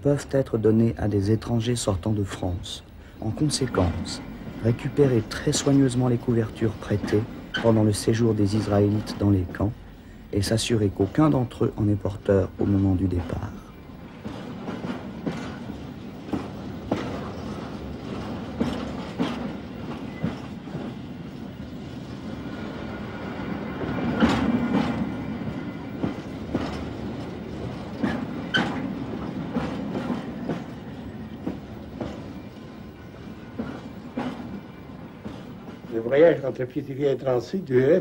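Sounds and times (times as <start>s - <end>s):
train rumbling on track: 0.0s - 38.0s.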